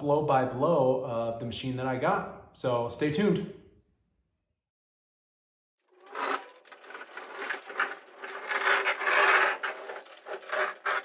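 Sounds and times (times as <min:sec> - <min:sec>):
casters rolling on concrete: 0:05.9 - 0:11.0.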